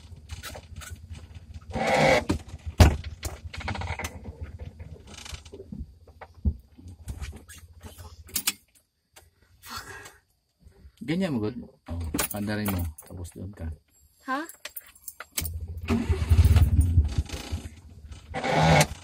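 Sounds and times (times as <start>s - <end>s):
cab clunks and rattles: 0.0s - 8.8s, 11.8s - 13.7s, 14.6s - 19.0s.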